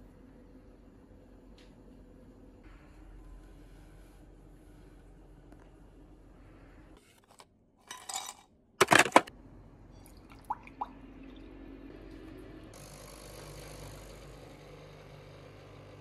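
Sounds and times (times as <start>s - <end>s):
ice cubes clattering into glass: 7.9s - 9.3s.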